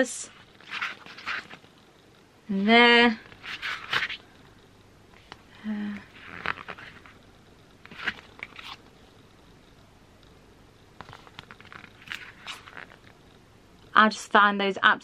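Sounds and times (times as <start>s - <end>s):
pages turning and rustling: 0.3s - 1.7s, 3.3s - 4.2s, 6.1s - 7.2s, 7.8s - 8.9s, 11.0s - 13.2s.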